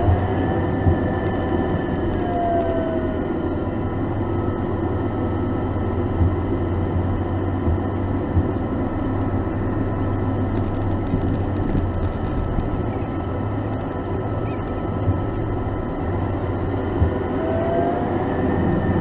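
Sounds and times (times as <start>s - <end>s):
airplane cabin engine hum: 0.0s - 19.0s
faint whining tones: 0.0s - 19.0s.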